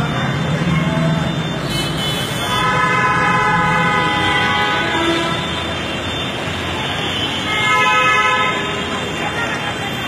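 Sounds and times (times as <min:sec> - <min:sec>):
road traffic: 0:00.0 - 0:10.0
vehicle horn: 0:01.7 - 0:05.8, 0:07.2 - 0:08.8.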